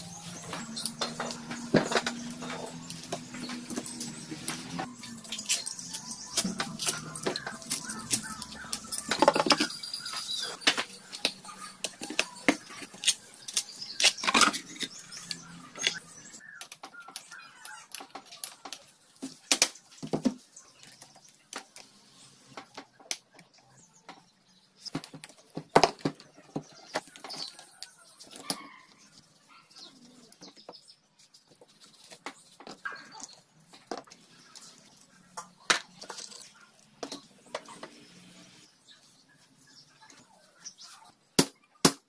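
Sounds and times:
metal tools and parts clinking: 0.4 - 18.9.

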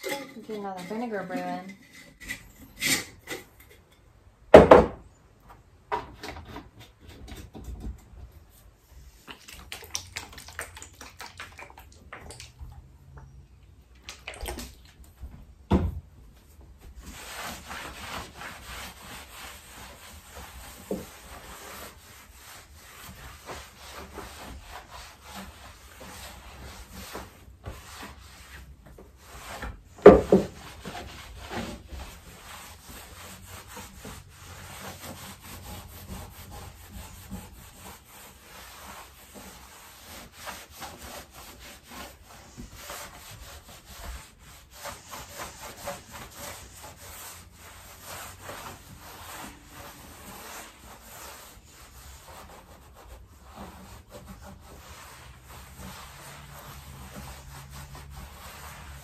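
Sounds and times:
rag scrubbing tabletop: 0.0 - 2.3, 16.4 - 59.0
loud knock: 4.5 - 5.0.

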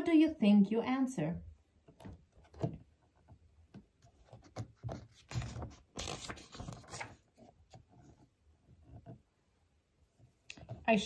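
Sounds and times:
book page rustling: 4.0 - 8.2.

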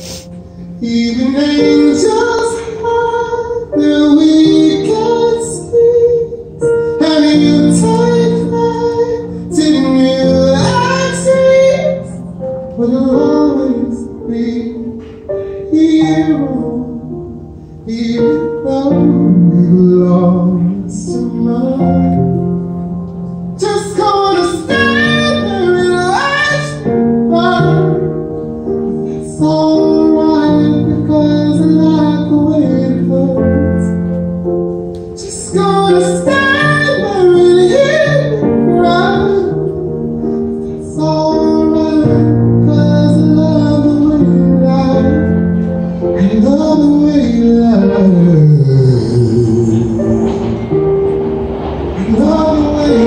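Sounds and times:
man singing into microphone: 0.0 - 22.5, 23.6 - 28.5, 29.1 - 34.2, 35.2 - 51.0, 52.0 - 53.0
instrumental backing music: 0.0 - 53.0.

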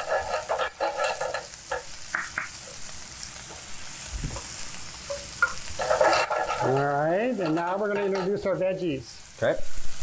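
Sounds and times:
spatula scraping a pan: 0.0 - 2.9, 4.4 - 8.5
food sizzling in frying pans: 0.0 - 10.0.

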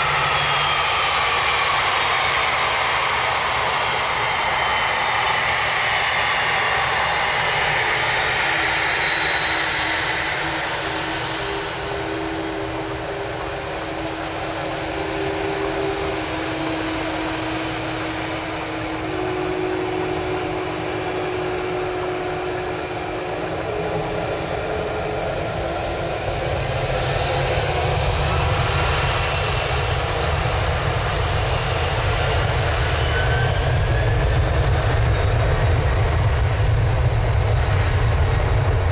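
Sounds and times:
jet engines taxiing: 0.0 - 38.9.

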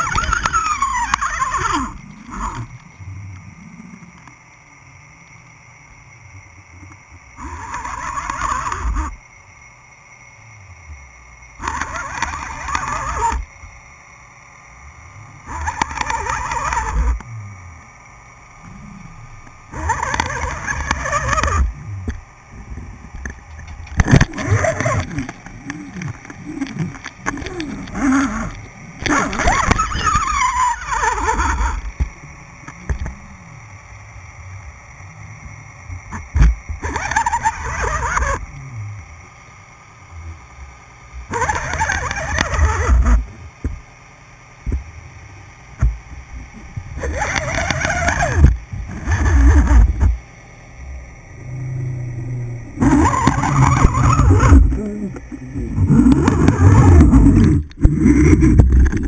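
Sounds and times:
muffled underwater water rushing: 0.0 - 59.0
low rumbling: 44.6 - 59.0.

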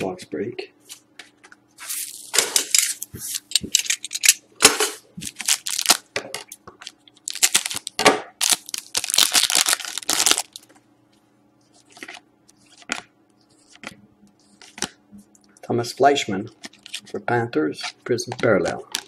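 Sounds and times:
foil wrapper crinkling and tearing: 5.2 - 6.1, 6.8 - 10.7.

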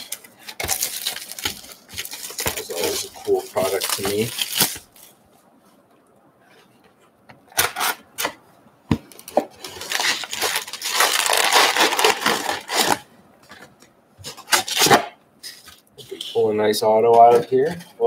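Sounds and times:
crinkly rustling of packs: 0.0 - 5.2, 9.1 - 16.5.

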